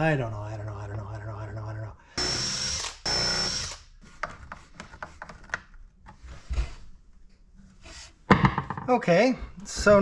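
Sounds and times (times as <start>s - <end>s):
cordless drill whining: 2.2s - 3.8s
heavy thump: 8.3s - 9.0s
wooden pieces knocking: 8.3s - 9.0s.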